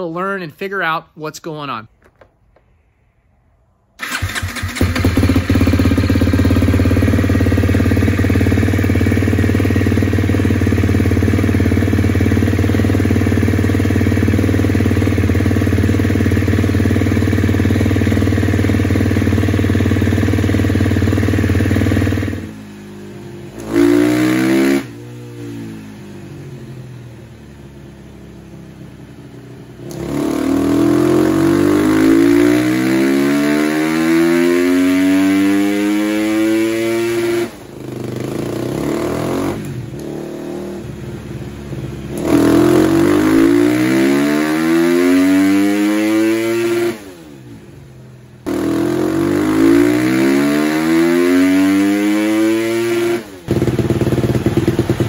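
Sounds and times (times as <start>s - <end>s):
dirt bike engine revving: 4.0s - 22.5s, 23.5s - 25.6s, 29.8s - 40.8s, 42.1s - 47.2s, 48.5s - 55.0s.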